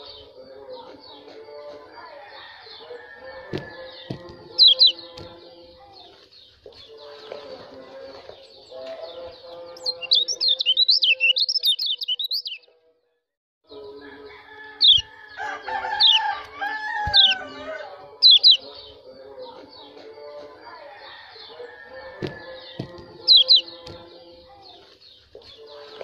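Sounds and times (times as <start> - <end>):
lower calls of other birds: 2.2 - 5.2, 6.0 - 12.6, 14.5 - 19.0
high twittering bird chirps: 2.6 - 7.2, 8.4 - 12.7, 14.8 - 19.0, 21.3 - 25.8.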